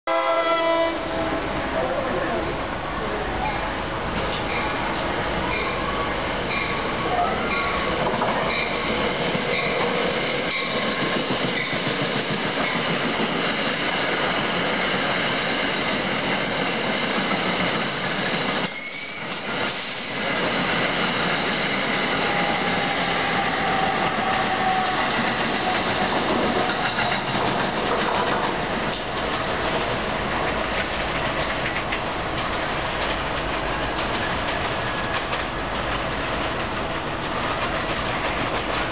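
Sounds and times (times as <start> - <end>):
train wheels rushing on rails: 0.4 - 38.9.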